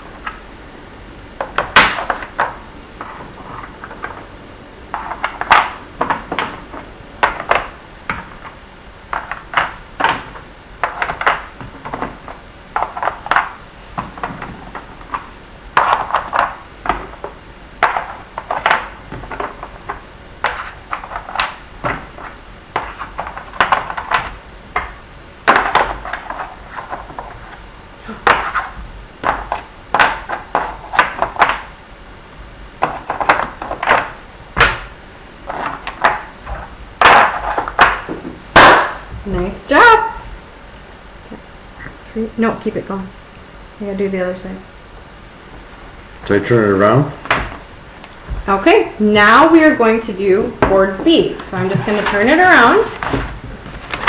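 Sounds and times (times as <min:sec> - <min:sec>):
wooden blocks clacking: 0:04.9 - 0:31.7, 0:32.8 - 0:34.9, 0:35.5 - 0:39.0.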